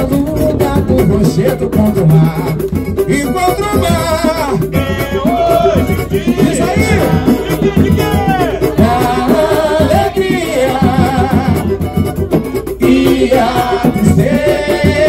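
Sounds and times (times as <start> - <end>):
cavaquinho strumming: 0.0 - 15.0
hand drum and percussion: 0.0 - 15.0
person singing: 4.2 - 11.9.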